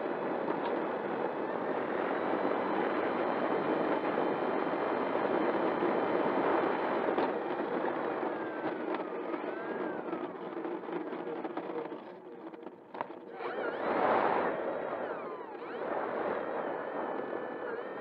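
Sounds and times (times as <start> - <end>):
electric motor whine: 0.3 - 11.4, 13.2 - 18.0
propeller rushing: 13.2 - 18.0.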